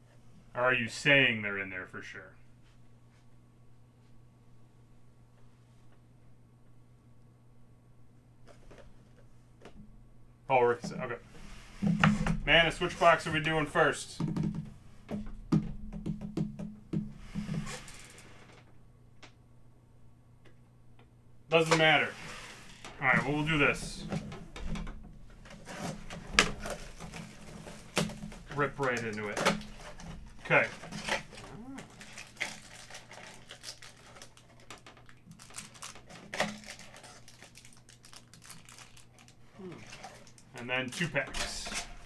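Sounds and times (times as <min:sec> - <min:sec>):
taps and knocks on boxes: 0:14.2 - 0:17.2.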